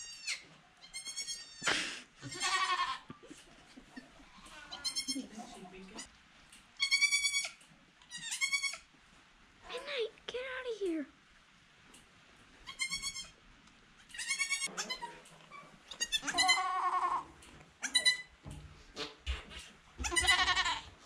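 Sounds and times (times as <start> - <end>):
goats bleating: 0.0 - 3.2, 14.1 - 15.1, 15.9 - 18.2, 20.0 - 20.9.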